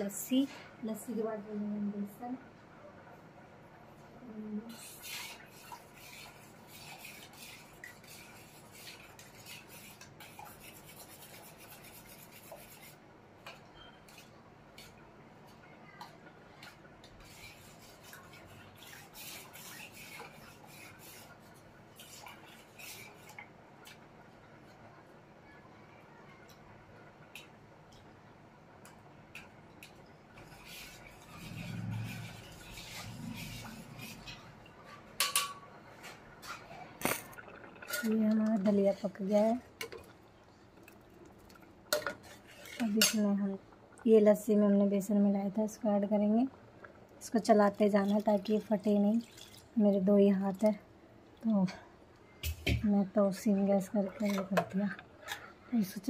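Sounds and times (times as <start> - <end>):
fingers mixing batter in steel bowl: 4.7 - 24.0, 28.8 - 35.3
spoon scraping steel bowl: 30.4 - 39.3, 41.9 - 43.3, 53.9 - 55.5.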